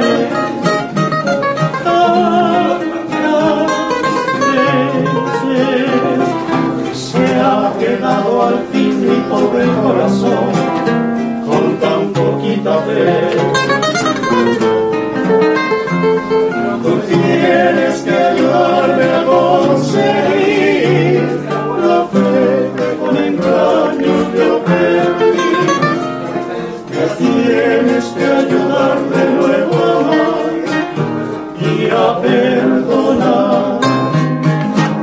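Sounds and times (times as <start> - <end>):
man singing with vibrato: 0.0 - 14.5, 16.6 - 34.3
acoustic guitars strumming: 0.0 - 35.0.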